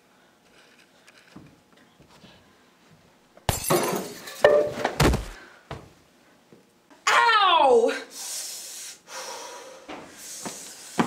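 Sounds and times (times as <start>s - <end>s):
vases crashing and shattering: 3.5s - 5.3s
heavy thud of person falling: 4.7s - 5.4s.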